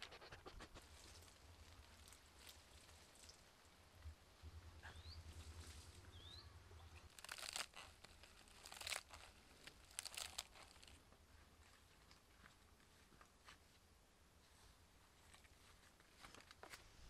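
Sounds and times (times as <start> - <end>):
lettuce leaves crinkling: 0.8 - 3.5, 7.0 - 13.0
bird chirps: 4.8 - 5.4, 6.0 - 7.1.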